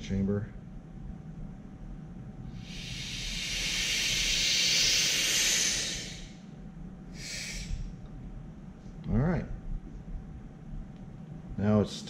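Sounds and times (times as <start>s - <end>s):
air hissing through valve: 2.6s - 6.4s, 7.1s - 7.9s.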